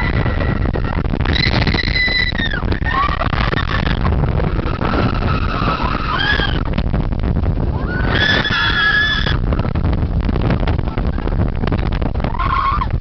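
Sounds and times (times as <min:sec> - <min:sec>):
riders screaming: 0:00.0 - 0:06.7, 0:07.7 - 0:09.6, 0:12.2 - 0:13.0
roller coaster rumbling on track: 0:00.0 - 0:13.0
wind buffeting microphone: 0:00.0 - 0:13.0.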